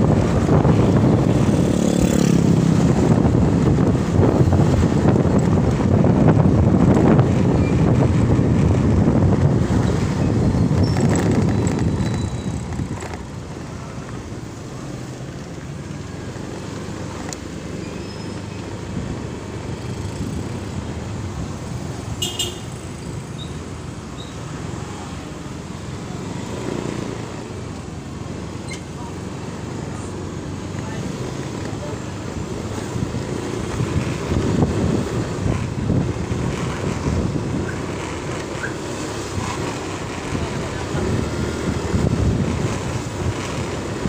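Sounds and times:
motorcycle engine running: 0:00.0 - 0:13.5
wind rush: 0:00.0 - 0:13.6, 0:40.7 - 0:44.0.

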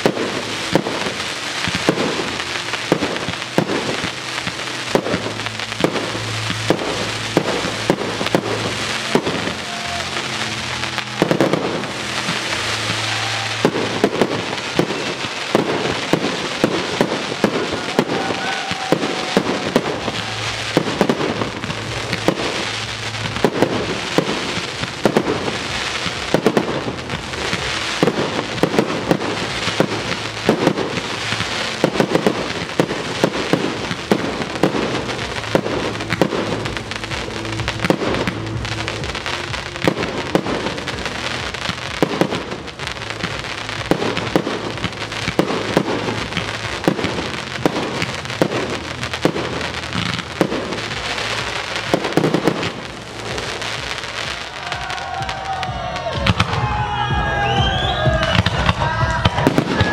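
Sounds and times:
fireworks crackling: 0:00.0 - 0:59.9
fireworks popping and banging: 0:00.0 - 0:59.9.

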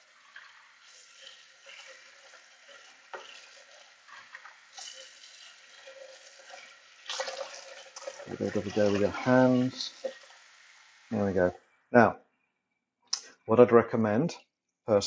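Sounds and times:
tap water splashing into container: 0:00.2 - 0:10.4.

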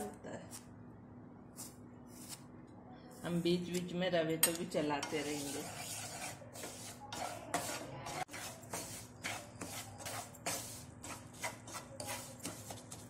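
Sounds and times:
wooden spatula scraping frying pan: 0:05.0 - 0:13.0.

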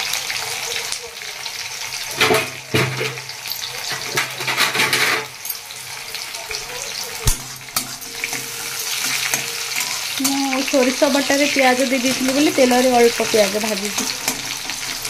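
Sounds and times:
onions sizzling in hot oil: 0:00.0 - 0:15.0
metal spatula stirring in pan: 0:07.4 - 0:15.0.

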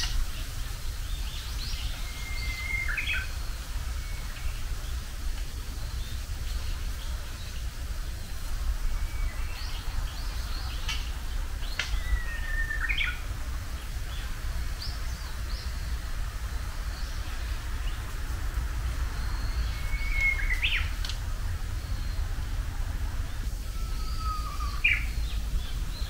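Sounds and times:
wind on microphone: 0:00.0 - 0:26.0
bird singing whistled song: 0:01.1 - 0:04.6, 0:08.9 - 0:11.0, 0:11.6 - 0:13.2, 0:19.1 - 0:21.0, 0:23.6 - 0:26.0.

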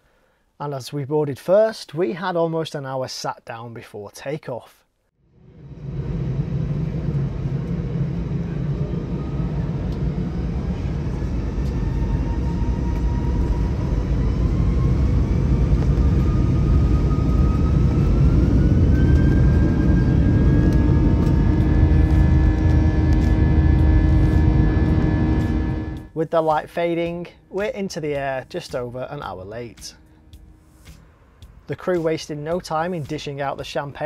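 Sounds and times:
jet engine rumble: 0:05.2 - 0:26.2
jet engine whine rising: 0:05.2 - 0:26.2.

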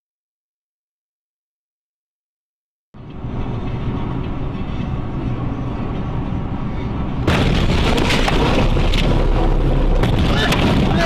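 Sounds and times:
vehicle road and engine noise: 0:02.9 - 0:11.0.

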